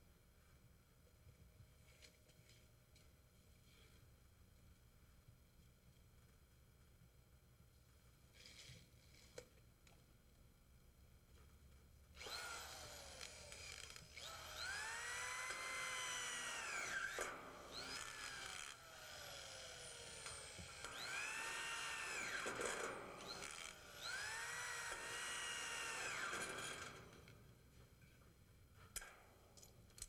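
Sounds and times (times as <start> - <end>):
electric drill motor whine: 12.2 - 27.3.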